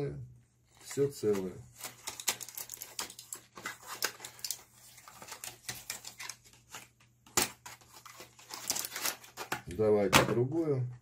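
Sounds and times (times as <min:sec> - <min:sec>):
blister packs crackling: 0:00.8 - 0:06.8, 0:07.8 - 0:09.6.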